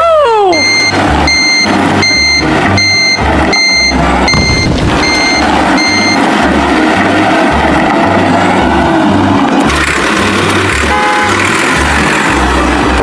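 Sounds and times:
truck reversing alarm beeping: 0.5s - 6.6s
low pulsing engine rumble: 0.5s - 13.0s.

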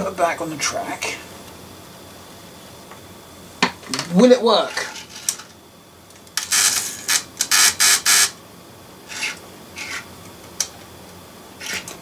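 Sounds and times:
model train motor running: 6.4s - 8.4s.

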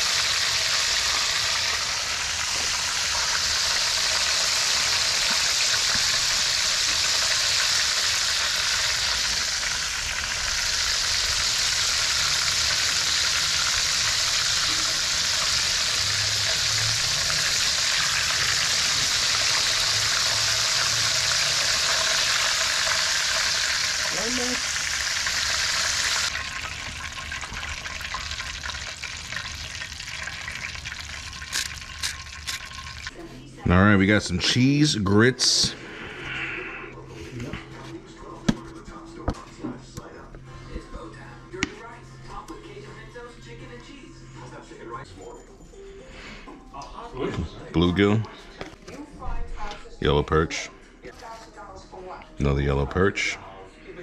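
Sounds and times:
fish deep-frying in oil: 0.0s - 33.1s.

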